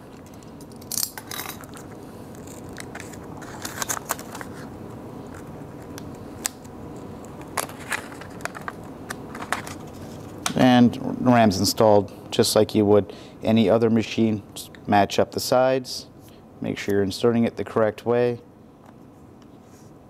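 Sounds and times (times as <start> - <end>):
plastic packaging crackling: 1.7 - 4.7.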